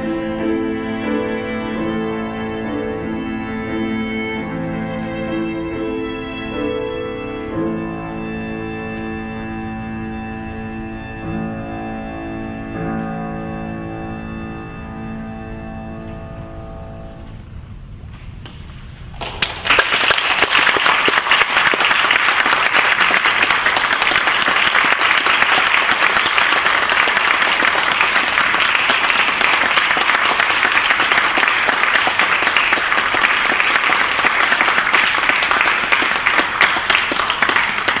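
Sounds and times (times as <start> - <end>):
audience applauding: 19.2 - 38.0.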